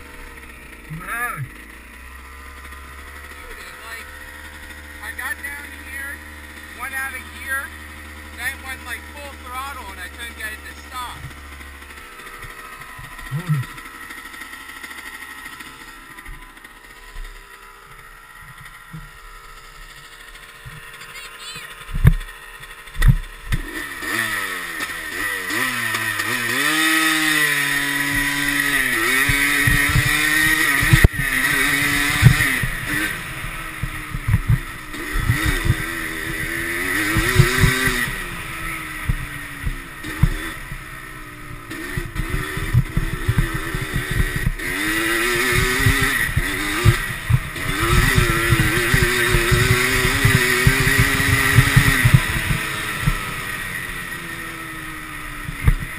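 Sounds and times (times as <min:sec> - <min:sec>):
quad bike engine revving: 0:00.0 - 0:55.9
thumps and knocks: 0:23.0 - 0:23.6, 0:55.5 - 0:55.9.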